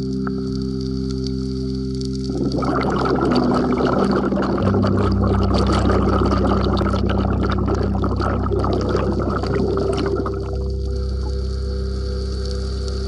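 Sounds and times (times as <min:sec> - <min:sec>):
background music low notes: 0:00.0 - 0:13.0
water bubbling and gurgling: 0:02.2 - 0:12.0.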